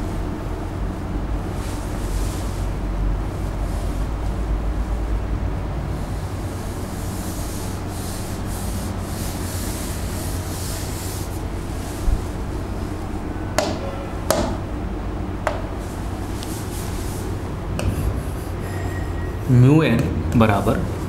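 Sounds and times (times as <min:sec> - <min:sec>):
chalk being wiped off board: 0:06.0 - 0:13.0, 0:15.8 - 0:18.8
sharp taps against board: 0:13.6 - 0:14.6, 0:15.4 - 0:15.6.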